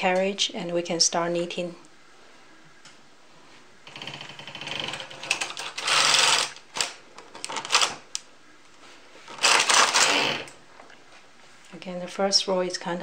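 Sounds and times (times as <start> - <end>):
knitting machine carriage clatter: 3.9 - 8.0, 9.4 - 10.5.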